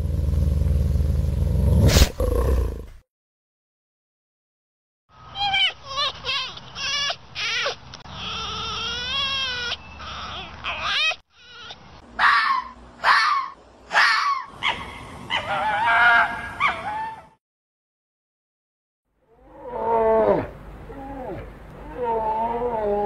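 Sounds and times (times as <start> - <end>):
sharp falling yelps: 12.2 - 17.4.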